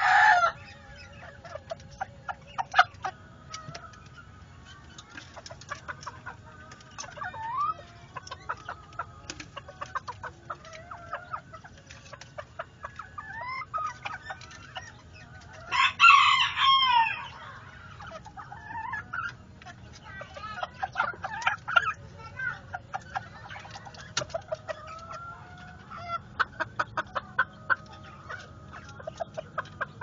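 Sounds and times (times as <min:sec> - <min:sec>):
chickens making soft calls: 0:00.0 - 0:30.0
rooster crowing: 0:15.7 - 0:17.3.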